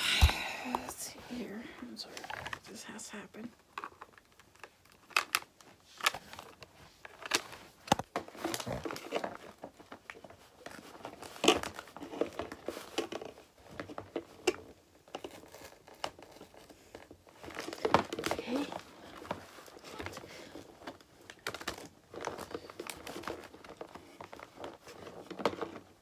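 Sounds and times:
cardboard box tearing and crinkling: 8.2 - 9.4.

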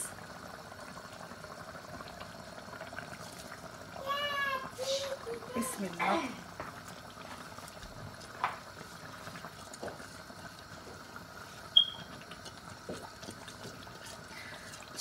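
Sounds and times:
faint bubbling: 0.0 - 15.0.

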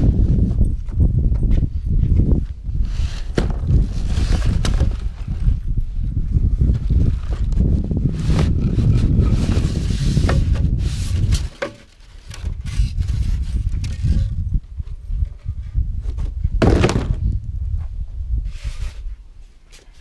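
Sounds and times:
cardboard box and styrofoam handled: 2.8 - 5.6, 6.8 - 14.3
object set down on concrete: 16.1 - 17.3.

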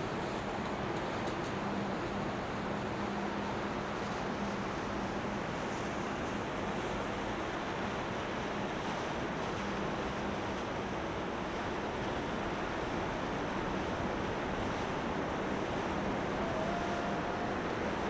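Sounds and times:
motorboat engine hum: 0.0 - 18.0
wind: 0.0 - 18.0
water rushing: 1.6 - 18.0.

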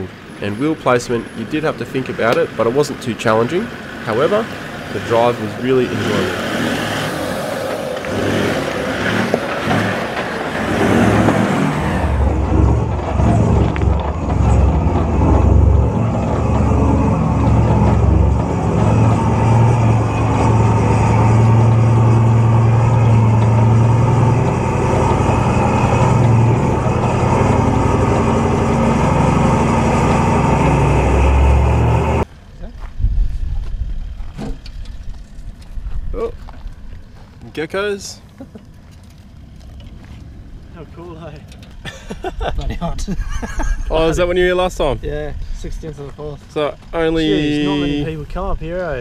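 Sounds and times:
engine hum: 0.0 - 49.0
broad rushing noise: 5.0 - 32.3.

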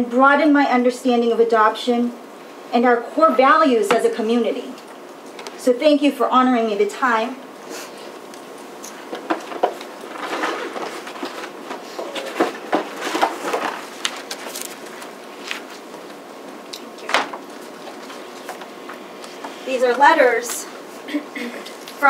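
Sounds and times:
room hum: 0.0 - 22.0
paper rustling: 8.8 - 20.5.

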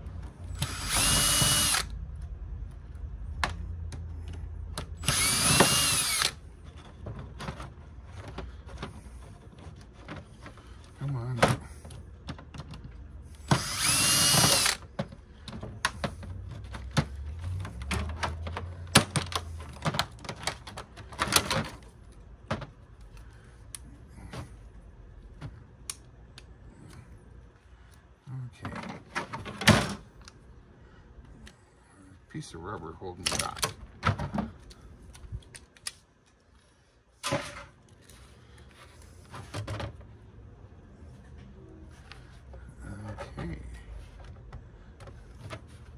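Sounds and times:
cordless drill spinning: 0.5 - 1.9, 5.0 - 6.4, 13.4 - 14.9
screws and plastic parts clattering: 11.5 - 23.3.

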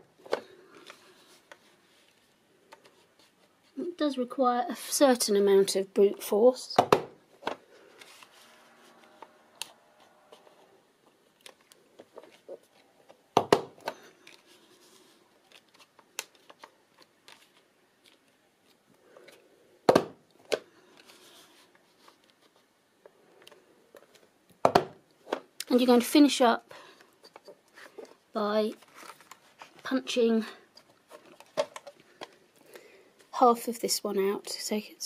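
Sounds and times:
paper rustling: 27.4 - 30.0.

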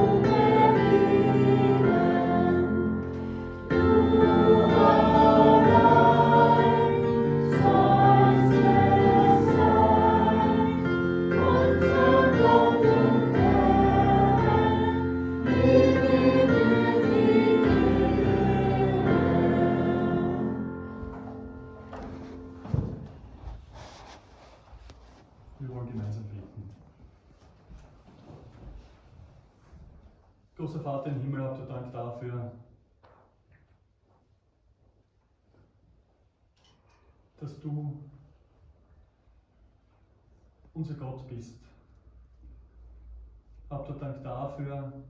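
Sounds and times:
congregation singing a hymn: 0.0 - 23.2.

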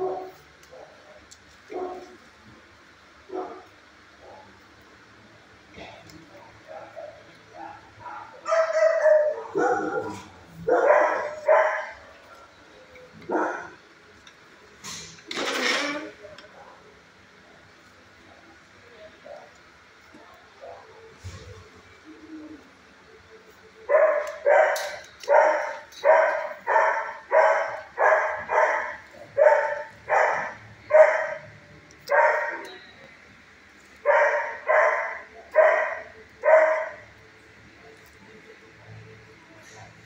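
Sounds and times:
dog barking: 1.7 - 2.2, 3.3 - 4.5, 6.4 - 12.0, 13.3 - 13.8, 23.9 - 32.7, 34.0 - 37.1.

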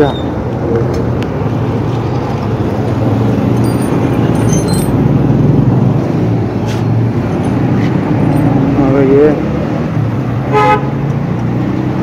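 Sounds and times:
road traffic engine rumble: 0.0 - 12.0
metal spanners clinking on concrete: 3.5 - 5.0, 7.3 - 8.7.

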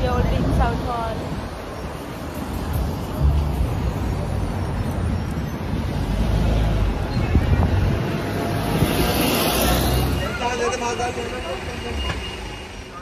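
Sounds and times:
wind buffeting microphone: 0.0 - 9.3
bus driving past: 0.0 - 13.0
street traffic: 0.0 - 13.0.

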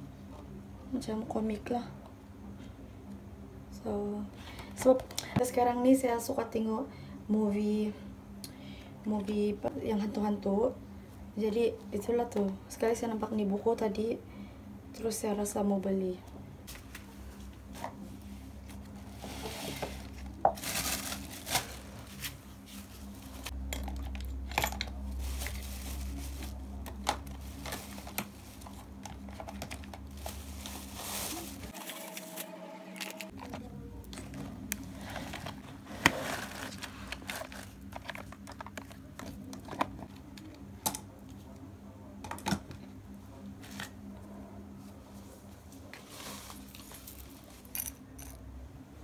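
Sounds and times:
steady low hum: 0.0 - 49.0
rustling and crinkling: 16.6 - 23.6, 24.6 - 32.2, 33.3 - 40.6, 44.8 - 48.3.

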